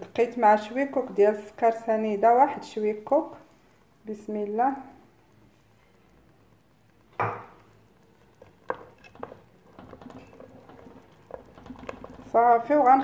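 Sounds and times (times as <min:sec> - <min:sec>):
wooden spoon scraping pot: 0:08.2 - 0:13.0.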